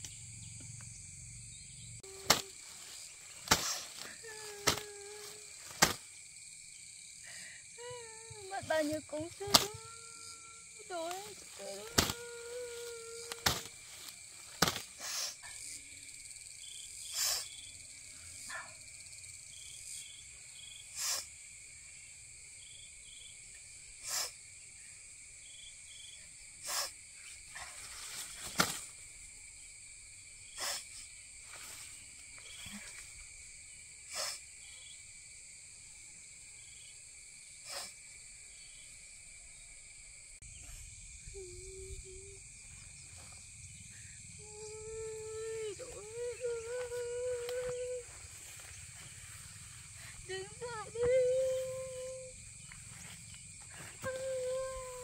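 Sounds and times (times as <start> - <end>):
high-pitched insect chorus: 0.0 - 55.0.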